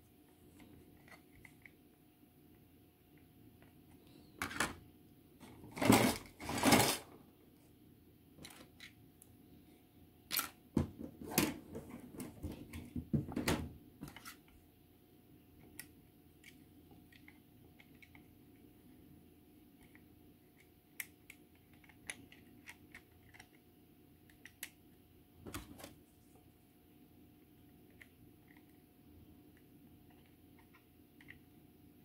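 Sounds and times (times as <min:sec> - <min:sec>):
light clicks and taps of plastic parts: 0:19.7 - 0:25.9.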